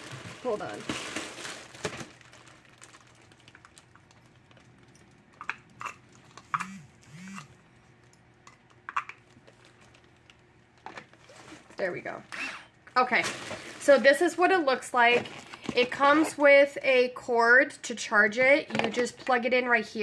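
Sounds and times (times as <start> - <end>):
plastic packaging rustling: 0.0 - 6.5, 9.1 - 12.0, 13.0 - 16.5.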